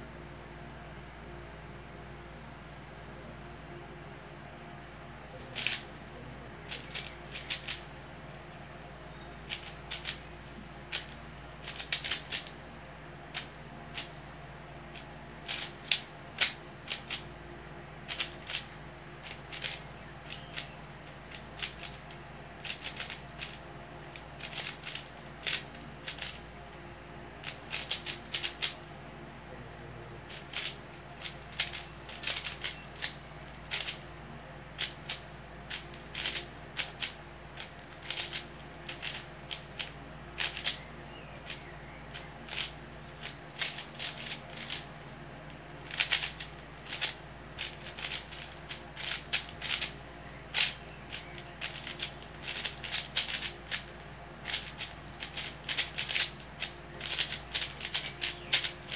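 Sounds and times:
puzzle cube plastic clicks: 0:05.4 - 0:05.9, 0:06.7 - 0:07.9, 0:09.5 - 0:10.3, 0:10.9 - 0:12.6, 0:13.3 - 0:14.2, 0:14.9 - 0:17.3, 0:18.1 - 0:26.4, 0:27.4 - 0:28.8, 0:30.3 - 0:34.0, 0:34.8 - 0:44.9, 0:45.5 - 0:58.9.

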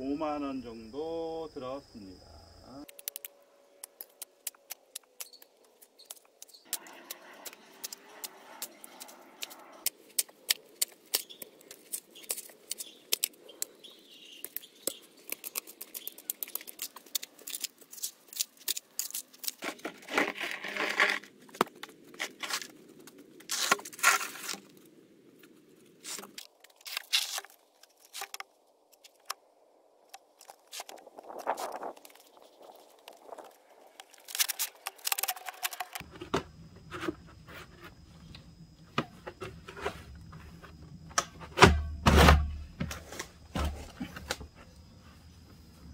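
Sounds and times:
digging scrapes and clicks: 0:02.8 - 0:13.8, 0:14.4 - 0:24.8, 0:30.4 - 0:36.1.

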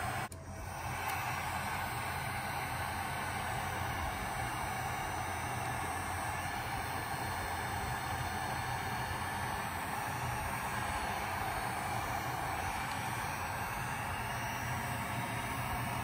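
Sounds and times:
heat gun blowing: 0:00.0 - 0:16.0.

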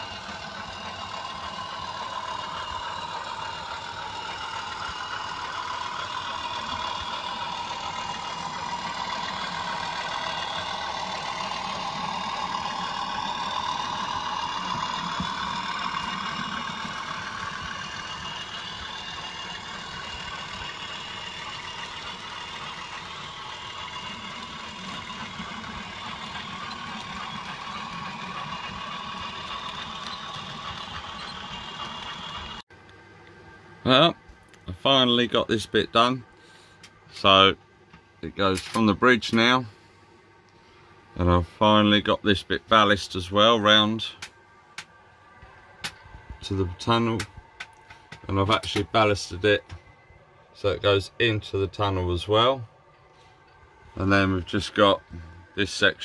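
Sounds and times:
model train running on track: 0:00.0 - 0:32.6.

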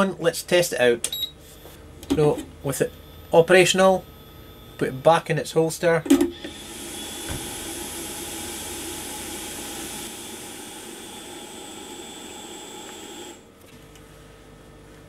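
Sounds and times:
hot air blower hiss and whistle: 0:06.4 - 0:13.4.

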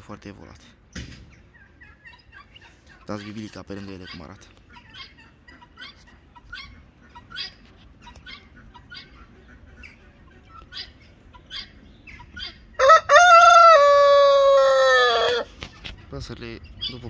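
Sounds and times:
high chirping bird calls: 0:01.3 - 0:13.0, 0:14.7 - 0:17.0
rooster crowing: 0:12.8 - 0:15.5.

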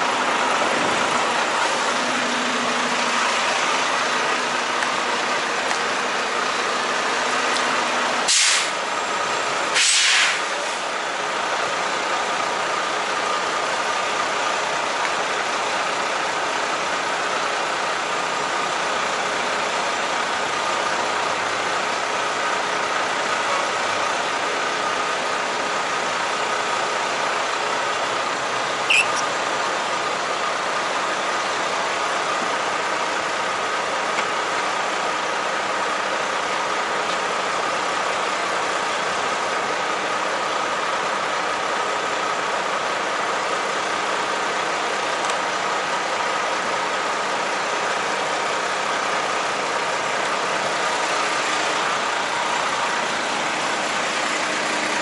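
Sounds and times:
truck engine running: 0:00.0 - 0:55.0
air brake hiss: 0:08.3 - 0:08.8, 0:09.7 - 0:10.9.

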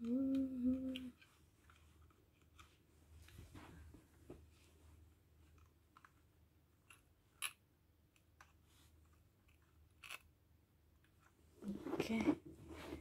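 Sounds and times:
faint plastic clicks: 0:00.0 - 0:03.4.

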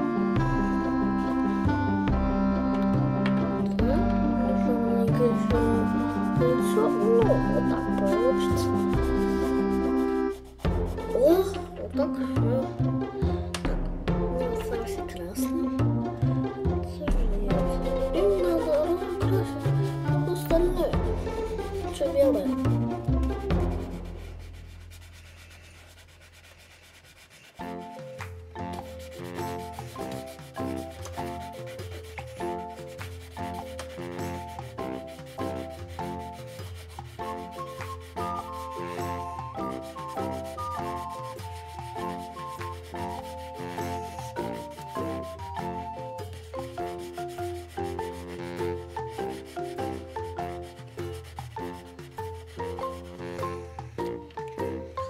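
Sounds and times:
plucked piano-like melody: 0:00.0 - 0:23.8
quiet background music: 0:00.0 - 0:55.0
crayon scratching on paper: 0:03.6 - 0:12.6, 0:17.1 - 0:53.9.

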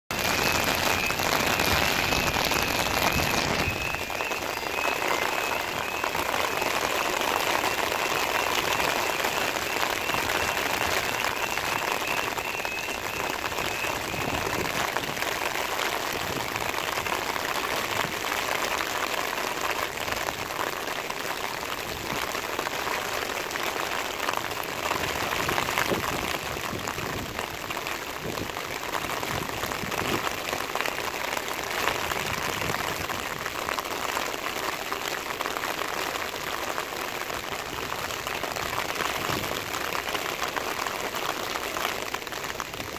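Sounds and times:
heavy rain hissing: 0:00.1 - 0:28.5.

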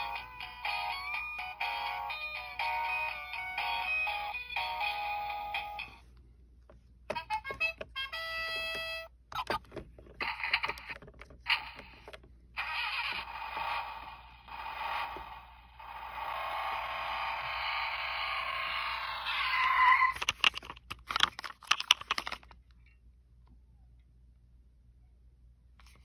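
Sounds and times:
plastic toy clicks and knocks: 0:09.4 - 0:12.2, 0:19.3 - 0:22.6
toy electronic engine revving: 0:10.2 - 0:20.2.

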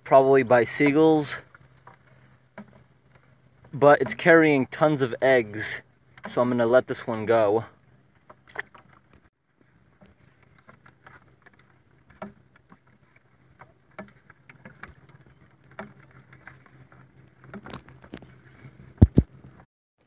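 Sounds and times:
water lapping against kayak: 0:00.0 - 0:19.6.

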